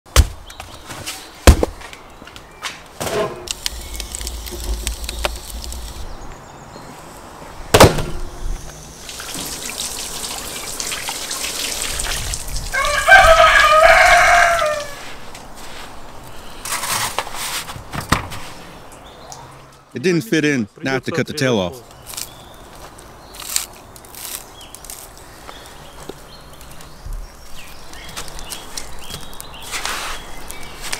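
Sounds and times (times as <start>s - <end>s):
salt hissing and rustling: 3.5s - 6.2s, 8.8s - 17.7s, 27.5s - 30.9s
rooster crowing: 12.7s - 15.1s.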